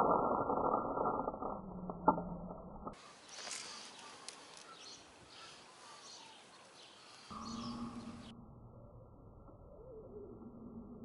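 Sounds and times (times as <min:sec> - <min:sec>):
faint bird chirps: 0:03.0 - 0:11.0.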